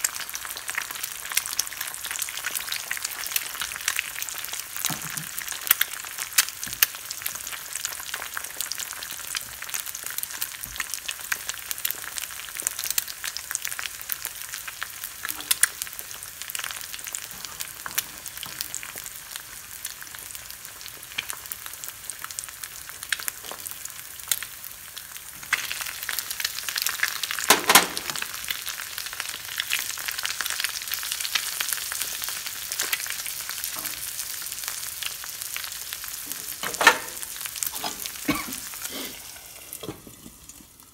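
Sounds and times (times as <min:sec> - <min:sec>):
eggs sizzling in a pan: 0:00.0 - 0:40.9
food clattering into pan: 0:27.4 - 0:28.4, 0:36.3 - 0:38.0, 0:39.8 - 0:40.7.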